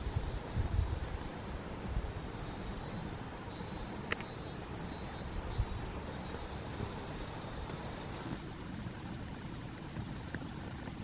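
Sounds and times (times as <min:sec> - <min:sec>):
faint high chirping: 0:02.2 - 0:08.2.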